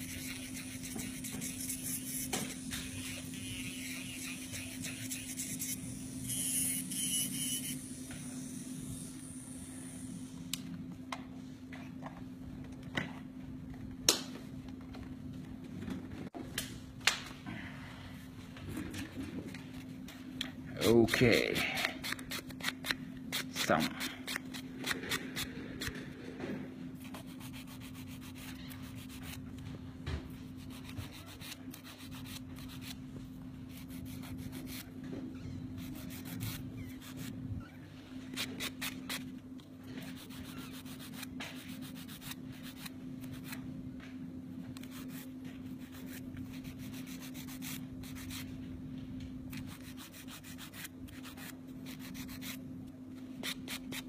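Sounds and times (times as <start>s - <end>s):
nail buffer scratching nails: 0.0s - 7.8s, 20.8s - 26.0s, 27.0s - 29.4s, 30.6s - 33.0s, 33.7s - 34.9s, 35.8s - 37.3s, 40.0s - 43.6s, 44.8s - 48.4s, 49.5s - 52.6s
steady low hum: 0.0s - 54.0s.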